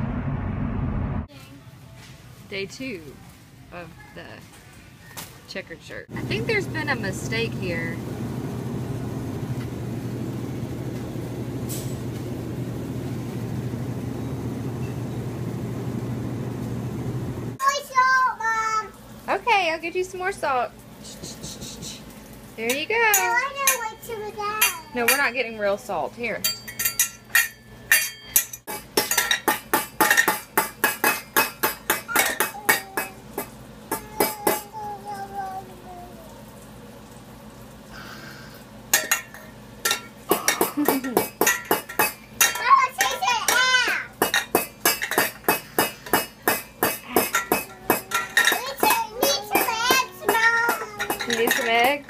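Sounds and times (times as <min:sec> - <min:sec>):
car engine and road noise: 0:00.0 - 0:01.3
metal utensils clinking on saucepans: 0:22.6 - 0:34.7, 0:38.9 - 0:52.0.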